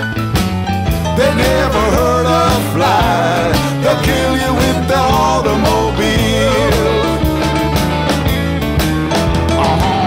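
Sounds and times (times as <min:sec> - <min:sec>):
country rock music: 0:00.0 - 0:10.0.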